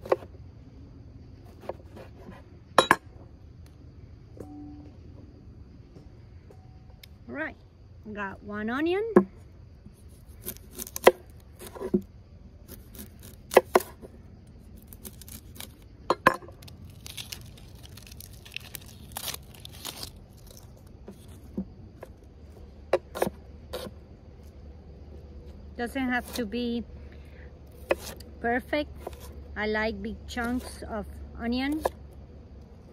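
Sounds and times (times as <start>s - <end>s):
onion skin crackling and tearing: 10.1s - 11.8s, 12.6s - 13.9s, 14.6s - 15.9s, 16.5s - 21.6s.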